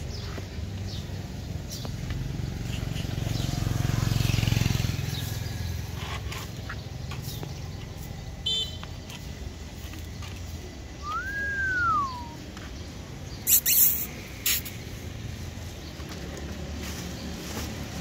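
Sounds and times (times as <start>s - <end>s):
vehicle passing by: 0.6s - 8.1s.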